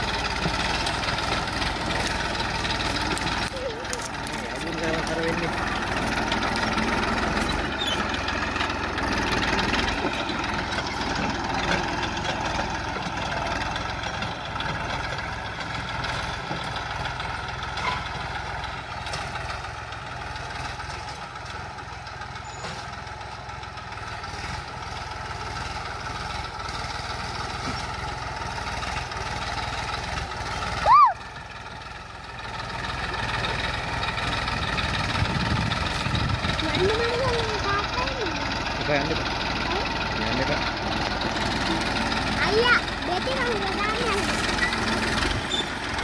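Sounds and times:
tractor diesel engine running: 0.0 - 46.0.

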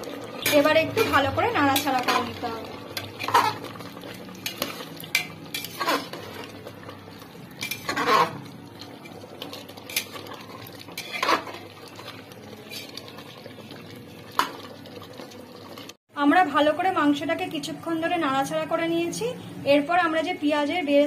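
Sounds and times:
spatula scraping a pot: 3.0 - 6.6, 7.5 - 13.1.

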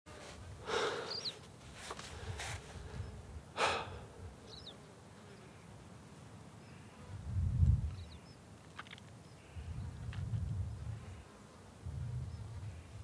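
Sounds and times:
man breathing out hard: 0.6 - 1.3, 3.6 - 4.2
wind rumble on microphone: 7.1 - 8.3, 9.4 - 13.0.

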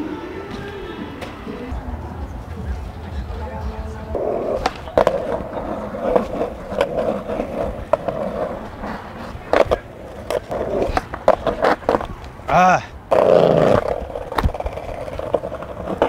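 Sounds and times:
skateboard wheels rolling on asphalt: 0.0 - 16.0
skateboard clacking on ground: 4.1 - 12.4, 13.1 - 16.0.

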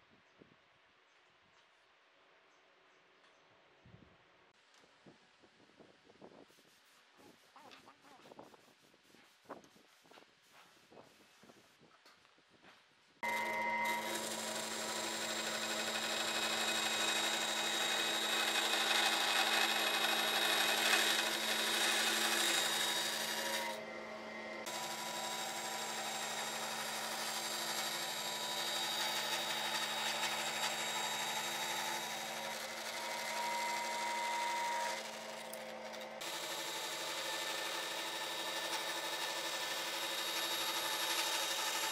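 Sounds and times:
band saw motor hum: 13.2 - 41.9
saw blade rasping through wood: 13.2 - 41.9.

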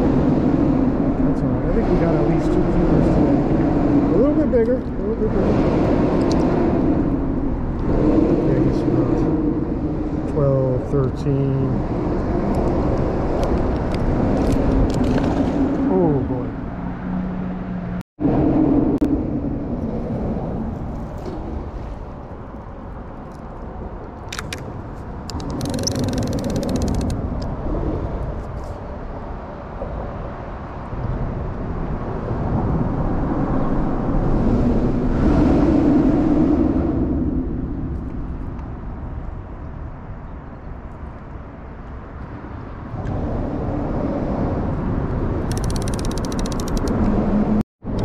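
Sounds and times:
low rumble: 0.0 - 29.1
fishing reel clicks: 25.3 - 27.2, 45.5 - 46.9
fishing reel ticking and whirring: 25.3 - 27.2, 45.5 - 46.9.

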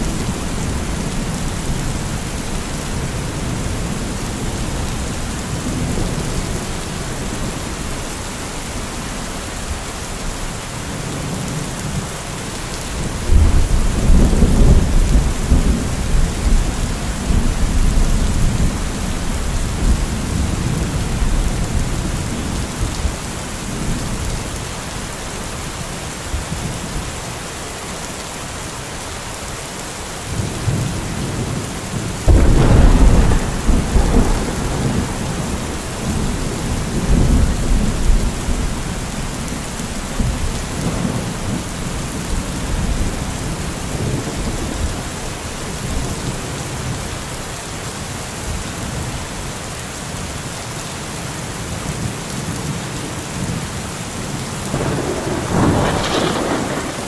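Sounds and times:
heavy rain: 0.0 - 57.0
thunder clap and rumbles: 12.9 - 24.4, 30.3 - 45.1, 54.2 - 57.0.

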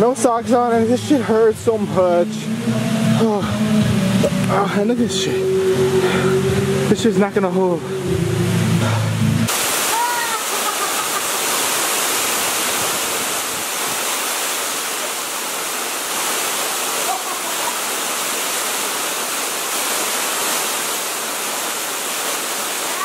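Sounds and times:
waterfall pouring into pool: 9.5 - 23.0.

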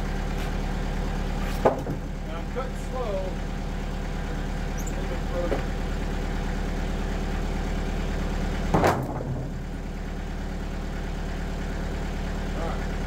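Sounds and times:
sawmill engine running: 0.0 - 13.0
board dropping with loud thud: 1.5 - 2.1, 8.7 - 9.6.

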